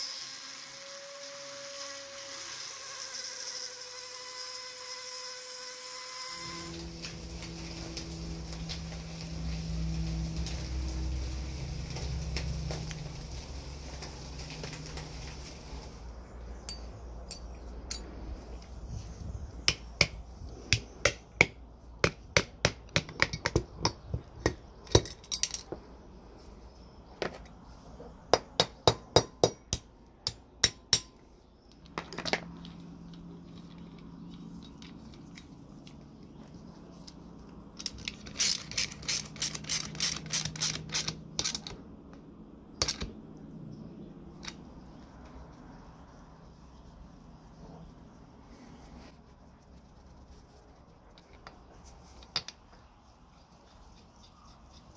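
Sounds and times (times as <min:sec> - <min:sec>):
metal parts clicking together: 0:24.4 - 0:25.8, 0:37.8 - 0:41.8, 0:42.8 - 0:43.1.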